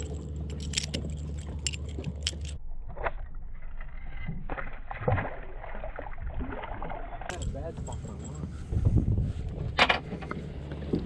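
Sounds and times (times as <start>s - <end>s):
fishing pliers clicking and rattling: 0.0s - 2.6s, 7.3s - 8.2s
low steady hum: 0.0s - 11.0s.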